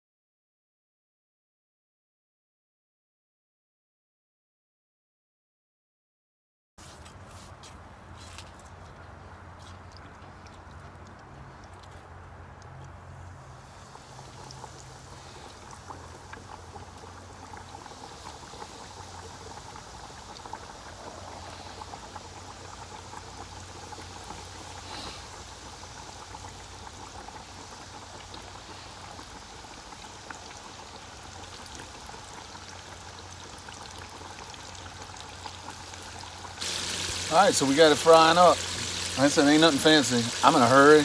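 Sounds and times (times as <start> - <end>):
fish frying in hot oil: 13.2 - 41.0.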